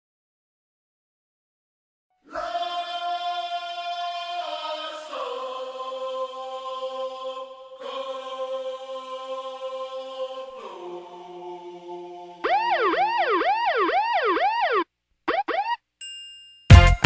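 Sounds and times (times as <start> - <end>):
chant-like chord: 2.3 - 12.5
siren-like wail: 12.4 - 15.8
high steady tone: 12.4 - 16.2.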